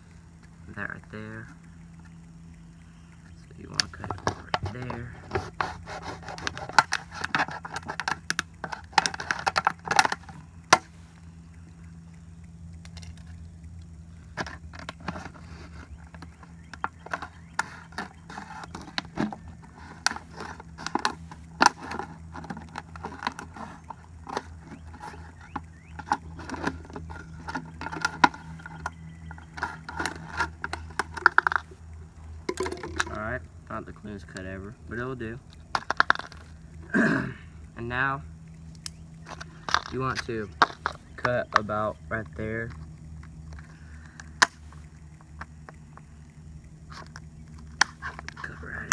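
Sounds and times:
steady low hum: 0.0s - 48.9s
plastic crackling: 3.1s - 11.9s, 12.7s - 33.2s
knife sawing plastic bottle: 5.2s - 8.0s.

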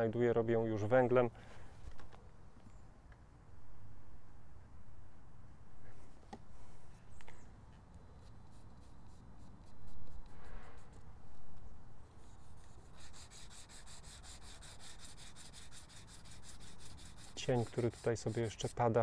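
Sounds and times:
charcoal scratching on paper: 8.1s - 11.1s, 12.0s - 19.0s.

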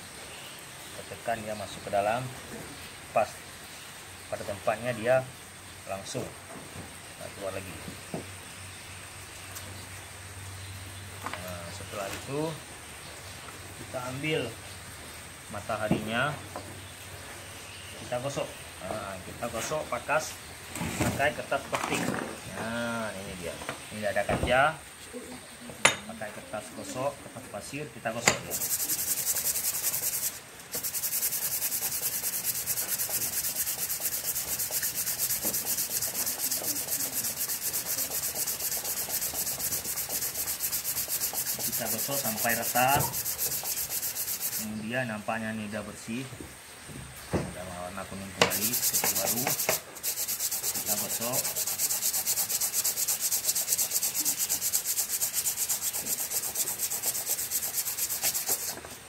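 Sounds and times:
sanding by hand on sandpaper: 28.4s - 44.8s, 48.4s - 58.9s.

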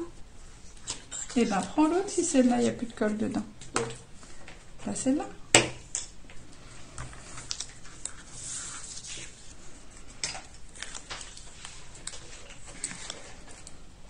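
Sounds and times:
paper rustling: 6.7s - 13.7s.

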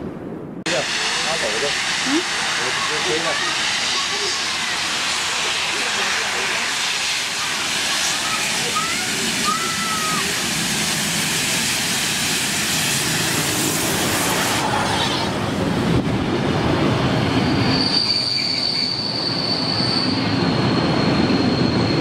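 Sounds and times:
steam locomotive hiss and rumble: 0.7s - 22.0s
high metallic squeal: 17.2s - 22.0s.

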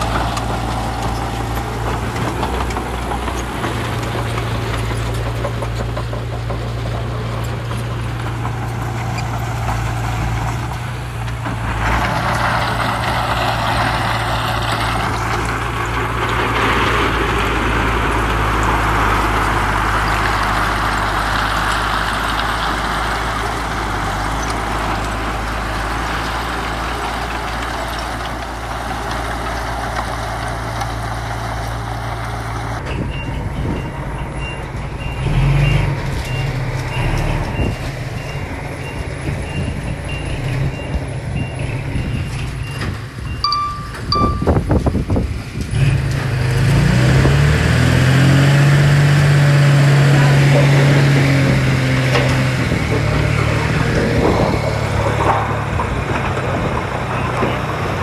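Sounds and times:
diesel engine running: 0.0s - 58.0s
reversing alarm beeping: 32.9s - 44.8s.

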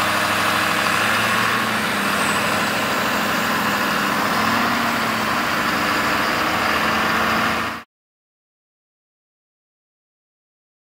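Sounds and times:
truck engine idling: 0.0s - 7.8s.

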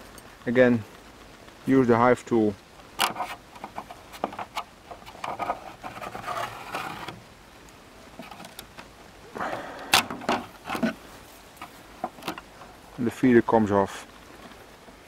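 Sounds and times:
tool scraping plastic on wood: 3.0s - 7.2s, 8.2s - 8.6s, 10.0s - 11.0s.

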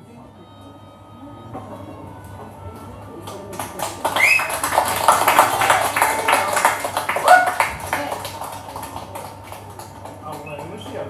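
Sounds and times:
audience applauding: 3.2s - 11.0s
cheering calls: 4.0s - 8.2s.

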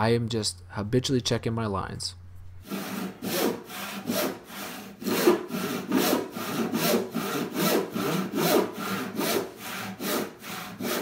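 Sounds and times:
handsaw rasping through wood: 2.6s - 11.0s.

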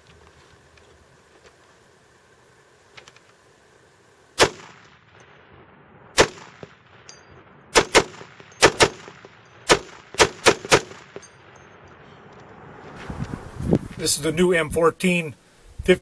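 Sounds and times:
rifle shots: 4.4s - 12.1s.

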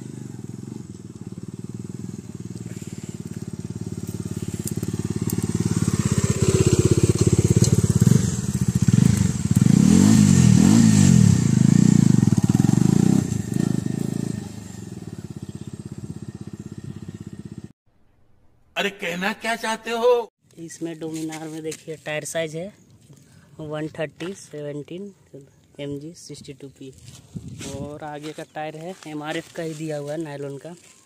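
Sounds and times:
motorcycle passing by: 0.0s - 17.7s.

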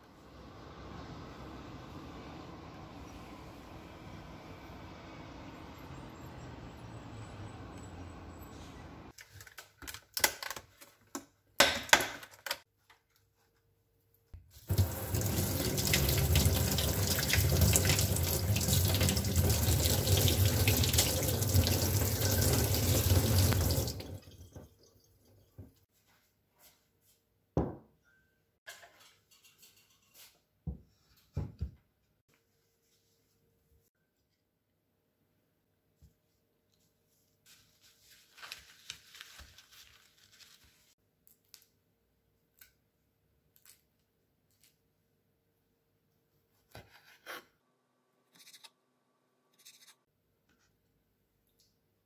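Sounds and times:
tap water running into sink: 14.7s - 24.9s.

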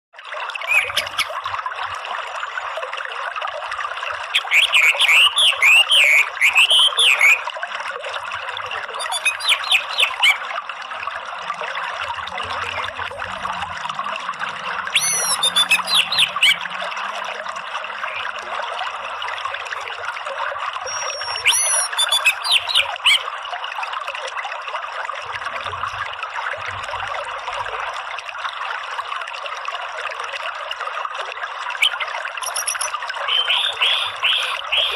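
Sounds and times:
running stream water: 0.1s - 34.9s
bird twittering song: 0.7s - 1.4s, 4.4s - 7.4s, 9.0s - 10.4s, 14.9s - 16.6s, 20.9s - 23.2s, 31.8s - 34.9s.

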